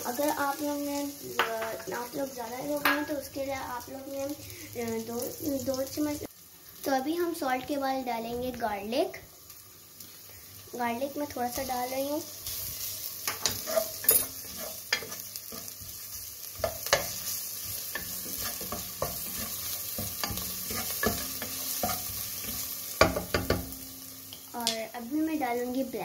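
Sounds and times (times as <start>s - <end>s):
onions and garlic sizzling in oil: 0.0s - 26.0s
spatula scraping a pot: 13.3s - 15.9s, 16.6s - 22.7s.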